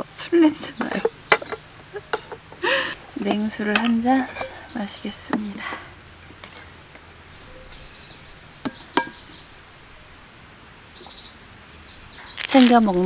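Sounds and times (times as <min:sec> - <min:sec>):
quiet outdoor ambience: 0:00.0 - 0:13.0
cup and bottle knocking on table: 0:08.7 - 0:09.2.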